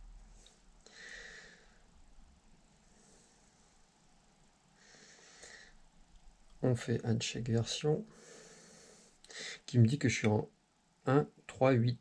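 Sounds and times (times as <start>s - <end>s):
soft breath: 0.3s - 2.0s, 2.7s - 3.9s, 4.7s - 5.9s, 8.1s - 9.7s.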